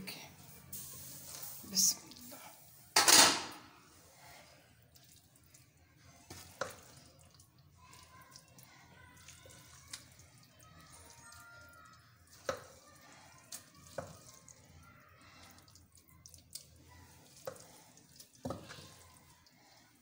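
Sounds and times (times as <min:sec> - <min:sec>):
spoon scooping and scraping pot: 0:16.6 - 0:19.9.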